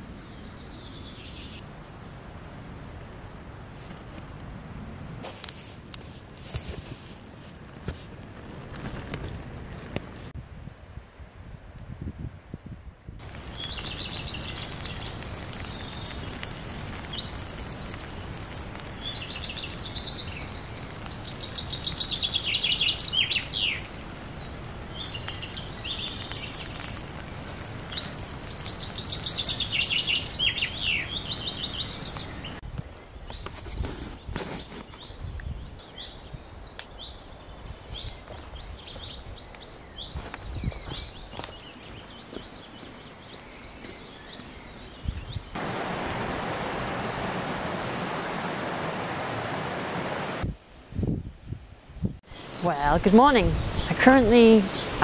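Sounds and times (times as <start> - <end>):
songbirds singing: 0.0 - 5.1, 13.2 - 45.6, 48.9 - 55.0
wind rustling: 0.0 - 55.0.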